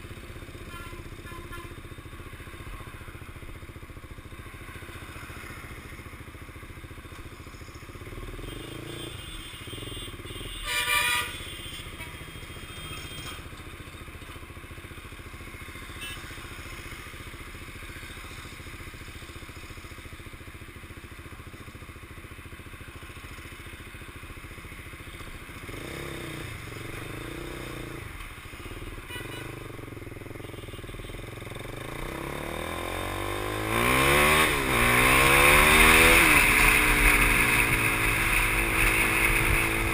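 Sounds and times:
motorcycle engine running: 0.0 - 39.9
horn beeping: 8.4 - 13.5, 29.0 - 29.6.

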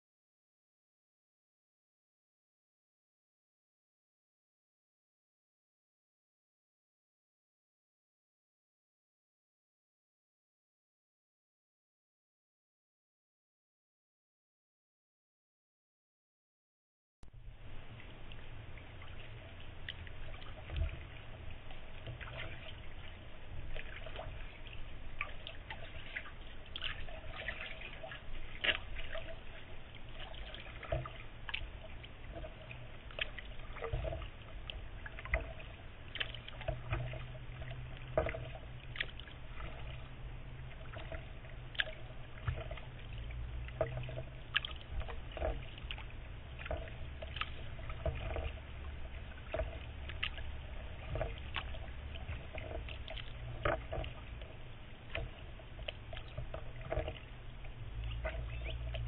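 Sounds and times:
low rumble: 17.2 - 59.0
paddle splashes and drips: 17.2 - 59.0.

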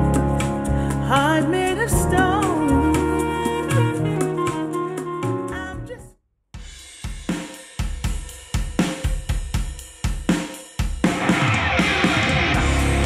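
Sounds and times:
jazz music over loudspeakers: 0.0 - 6.1
rock drum beat: 6.6 - 13.0.

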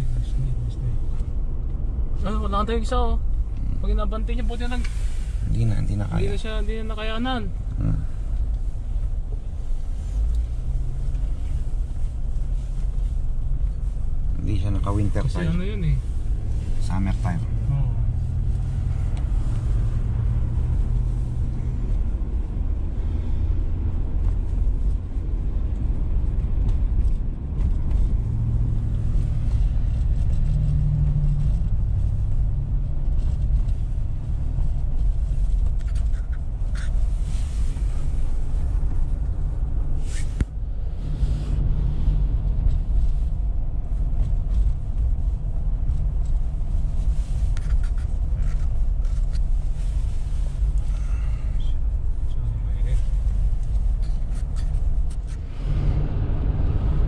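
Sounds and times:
car engine rumble: 0.0 - 57.0
engine hum: 0.0 - 57.0.

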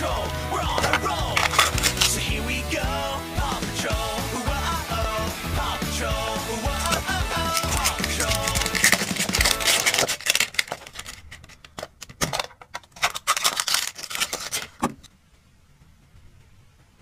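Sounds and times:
song: 0.0 - 10.0.

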